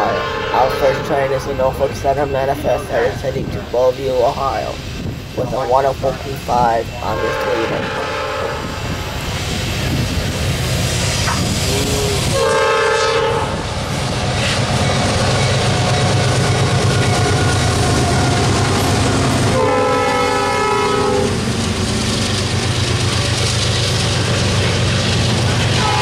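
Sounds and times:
train air horn blasts: 0.0 - 1.4, 7.0 - 9.0, 11.7 - 13.6, 19.5 - 21.4, 25.8 - 26.0
train rolling: 0.0 - 26.0
diesel engine rumble: 0.8 - 12.8, 13.4 - 26.0.

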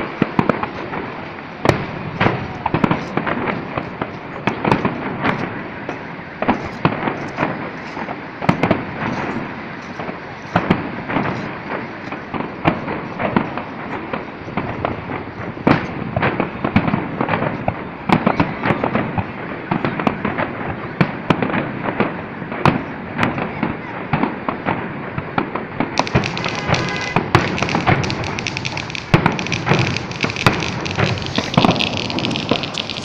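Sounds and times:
fireworks crackling: 0.0 - 33.0.

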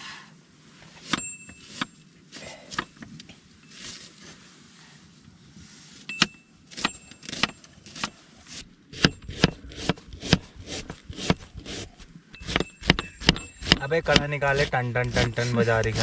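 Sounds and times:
short metallic ring: 1.1 - 2.0, 6.1 - 7.6, 12.4 - 13.9
person speaking: 13.8 - 16.0.

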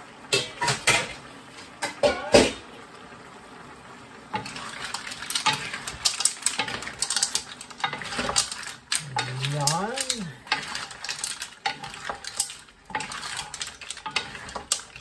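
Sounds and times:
mussel shells clattering in a wok: 4.3 - 15.0.

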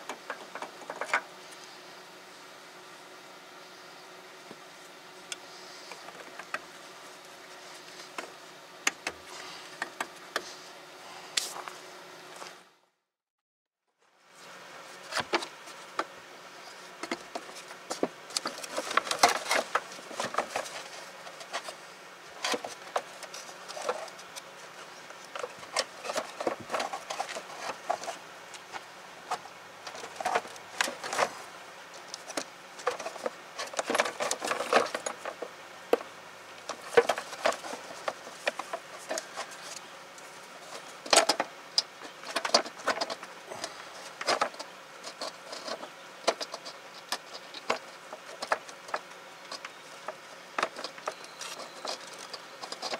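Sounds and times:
plastic parts clicking and rattling: 0.0 - 1.3, 17.0 - 21.8, 25.2 - 31.4, 32.0 - 36.0, 36.6 - 39.8, 40.7 - 43.3, 44.0 - 52.9.

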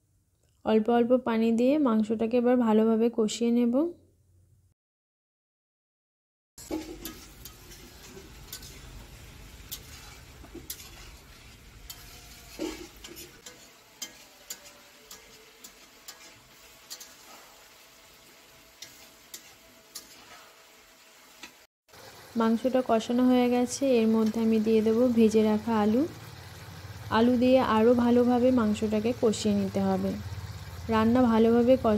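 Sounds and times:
spatula scraping and knocking pan: 6.6 - 20.7
chicken sizzling in a pan: 6.6 - 31.9.

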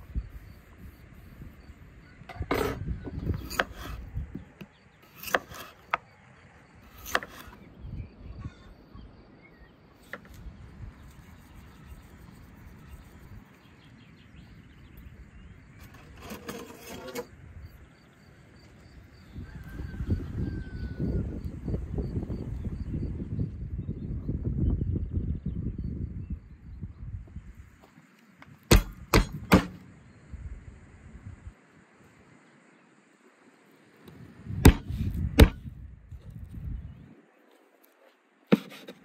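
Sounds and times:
crickets chirping: 0.0 - 23.2, 29.7 - 35.0
knife cutting on wooden board: 2.3 - 4.0, 5.0 - 6.0, 6.9 - 7.6, 34.7 - 35.6, 38.5 - 39.0.

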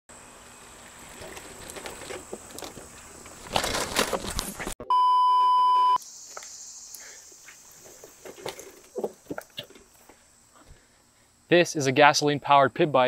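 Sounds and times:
rustling on grass: 0.5 - 4.8
loud electronic beep: 4.8 - 6.0.

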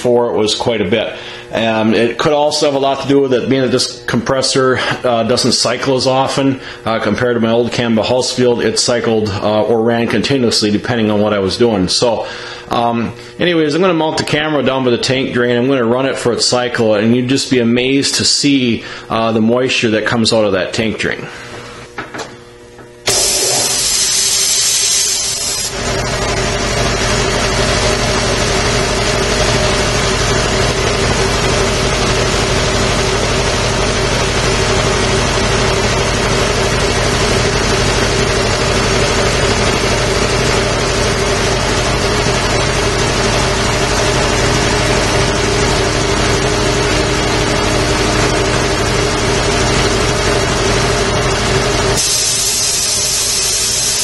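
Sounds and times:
air compressor running: 0.0 - 9.6, 11.9 - 13.5, 21.2 - 54.0
drain valve hissing air: 23.1 - 25.9, 52.0 - 54.0.

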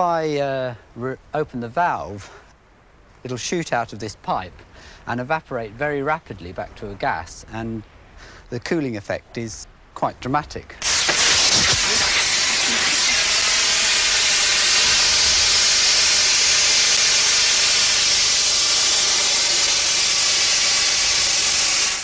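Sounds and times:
gas hissing from a pipe: 10.8 - 22.0.

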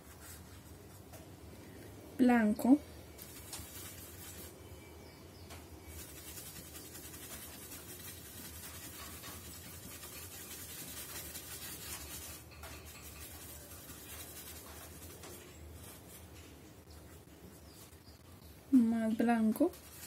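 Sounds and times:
paintbrush scrubbing thick paint: 3.2 - 4.6, 5.9 - 16.3, 19.4 - 20.0.

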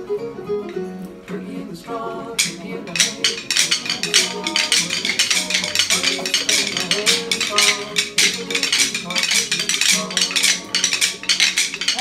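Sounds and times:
recorded song music: 0.0 - 12.0
rhythm sticks clicking: 2.4 - 12.0.

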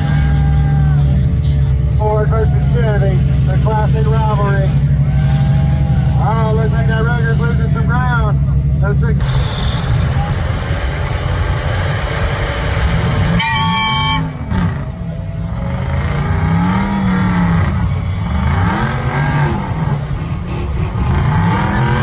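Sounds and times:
truck engines revving: 0.0 - 22.0
tires spinning in sand: 9.2 - 22.0
short horn blast: 13.2 - 14.8.

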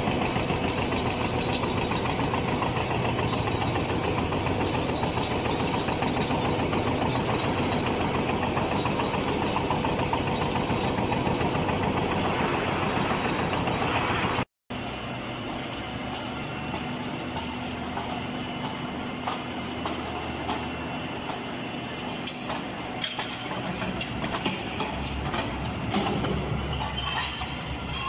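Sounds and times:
machinery hum and rumble: 0.0 - 28.0
metal knocks and clanks: 22.2 - 28.0.

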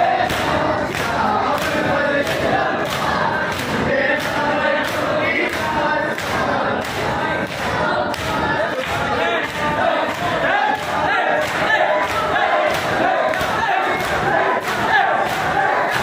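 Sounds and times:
crowd of men chanting: 0.0 - 16.0
person reciting: 0.0 - 16.0
hands beating chests: 0.2 - 16.0.

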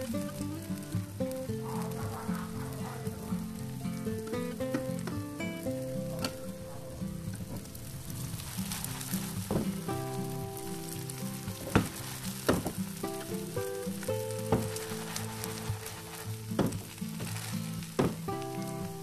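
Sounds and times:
background music stepping melody: 0.0 - 19.0
batter sizzling in hot oil: 7.6 - 19.0.

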